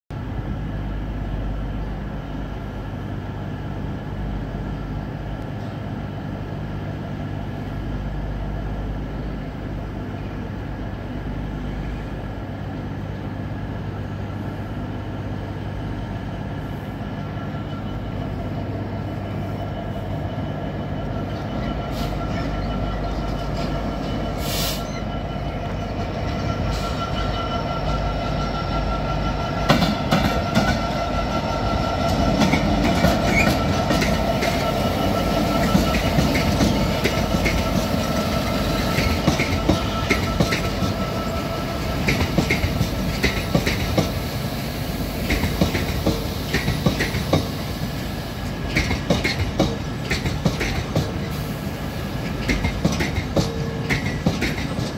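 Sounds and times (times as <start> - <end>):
diesel locomotive engine rumble: 0.1 - 54.9
high wheel squeal: 17.3 - 42.3.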